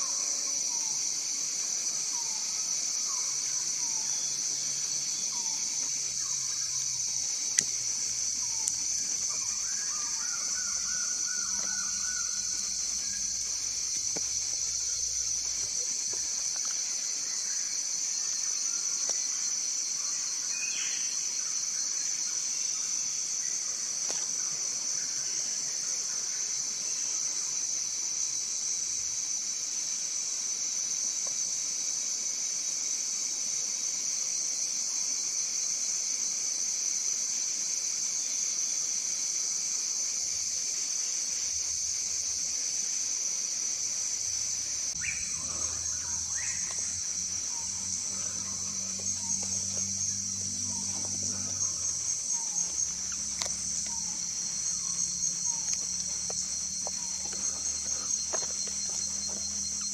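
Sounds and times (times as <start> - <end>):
high-pitched insect chorus: 0.0 - 59.9
bird calling: 5.3 - 16.2.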